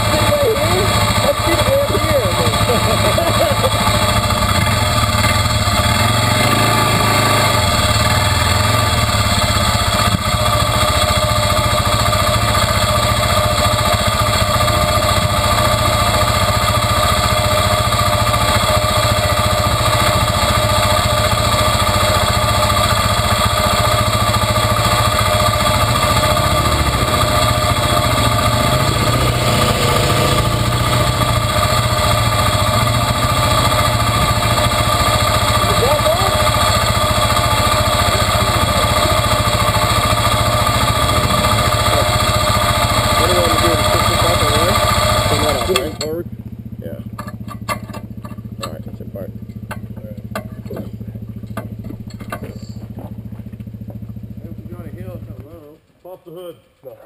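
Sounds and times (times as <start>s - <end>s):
quad engine idling: 0.0s - 56.2s.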